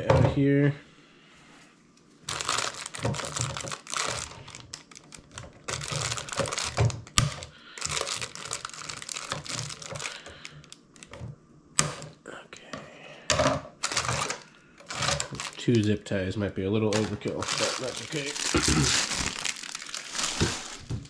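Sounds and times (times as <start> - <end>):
plastic rustling: 2.2 - 11.3, 13.4 - 16.0, 16.8 - 21.0.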